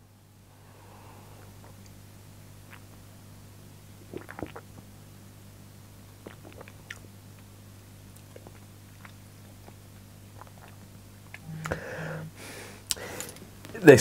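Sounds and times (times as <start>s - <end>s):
steady low hum: 0.0s - 14.0s
lip smacks and mouth clicks: 2.7s - 3.0s, 6.2s - 7.5s, 8.1s - 11.8s.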